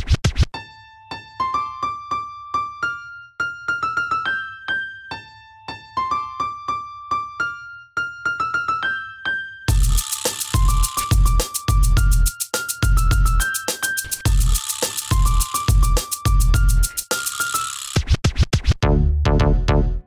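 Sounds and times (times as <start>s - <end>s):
solo piano melody: 1.0s - 9.7s.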